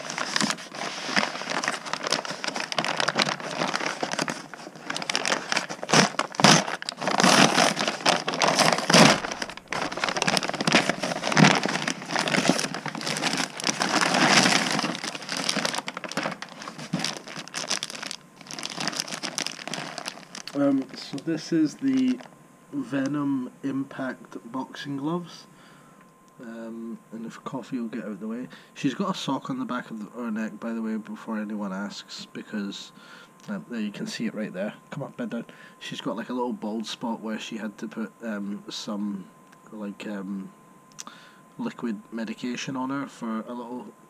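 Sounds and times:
paper mailer tearing and crinkling: 0.0s - 22.3s
plastic bag crinkling: 0.0s - 22.3s.

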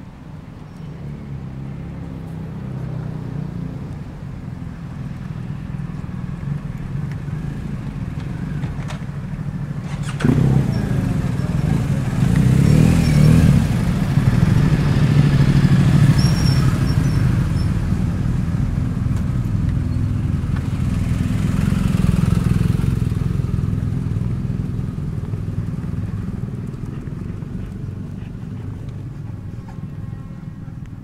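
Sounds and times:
vehicle engine running: 4.3s - 31.0s.

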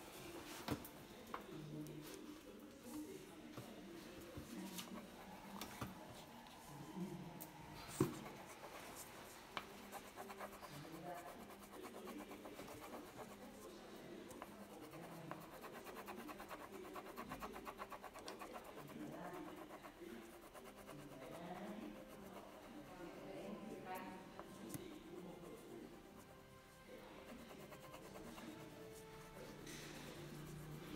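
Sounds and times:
crayon scratching on paper: 7.9s - 23.3s, 23.9s - 30.9s.

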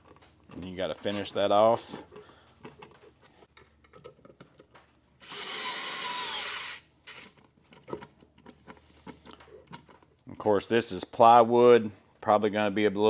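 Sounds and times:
electric screwdriver driving screw: 5.2s - 6.9s.

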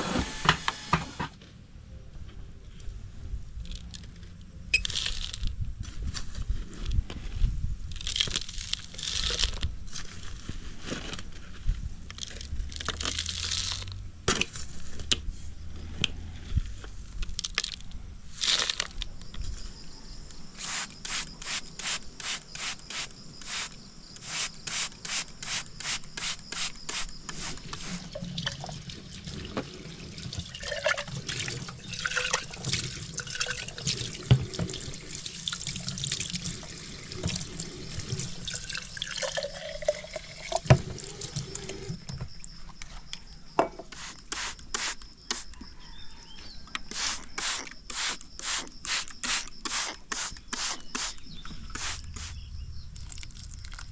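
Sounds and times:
spray bottle squirting water: 20.6s - 28.6s, 43.9s - 45.5s, 46.8s - 52.4s.

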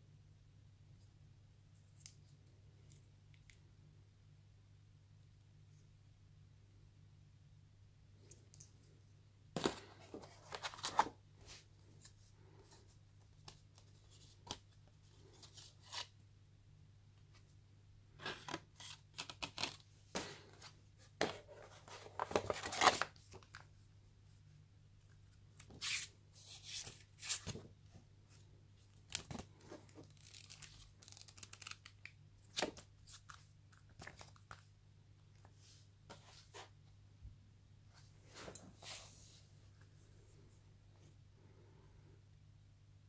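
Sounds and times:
booklet pages turning: 9.6s - 12.1s, 29.0s - 34.7s.

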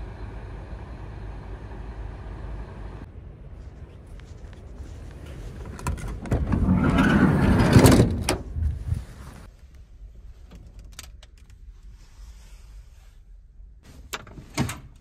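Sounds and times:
sliding door shutting: 5.8s - 9.4s
sliding door rolling on track: 6.1s - 8.5s.

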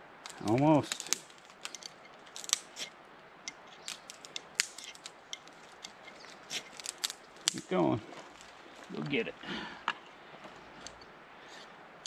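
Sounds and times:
fire starter scraping: 0.2s - 9.2s.

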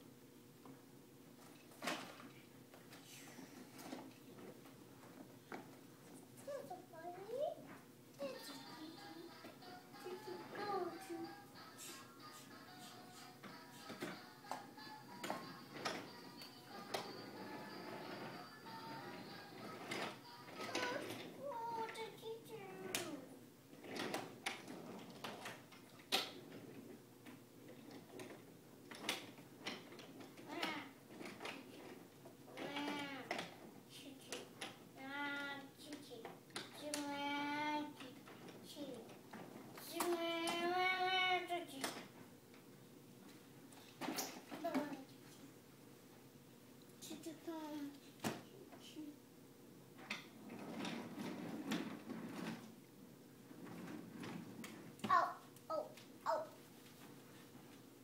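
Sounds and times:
toy trains clicking on track: 8.2s - 23.2s, 28.9s - 42.1s.

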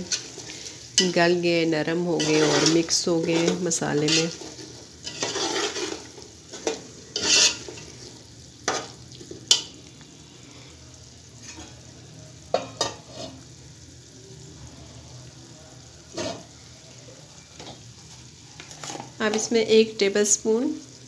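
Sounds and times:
low sizzle of cooking: 0.0s - 21.0s
metal spoon scraping pot: 2.2s - 8.0s.

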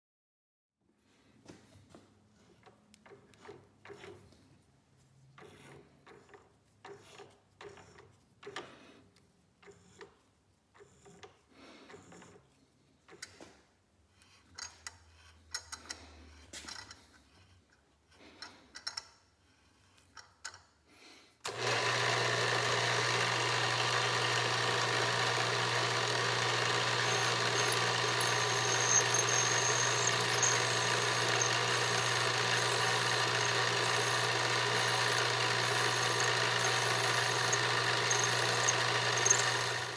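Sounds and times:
milling machine humming: 21.5s - 39.9s
high squeal from cutter: 26.7s - 39.9s.

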